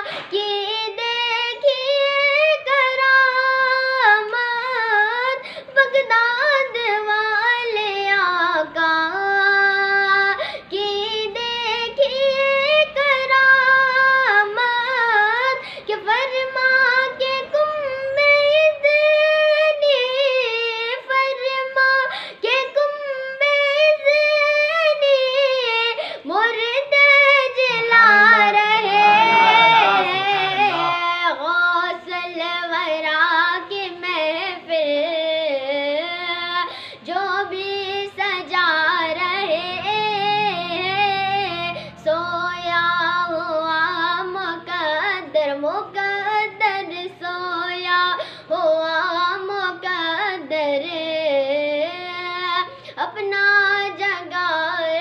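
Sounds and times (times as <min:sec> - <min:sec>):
boy singing: 0:00.0 - 0:55.0.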